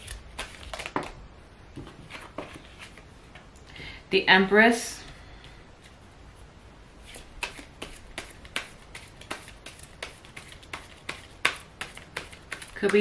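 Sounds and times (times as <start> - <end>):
cards being shuffled: 0.0 - 1.2, 7.0 - 13.0
crisp card slaps and clicks: 7.4 - 13.0.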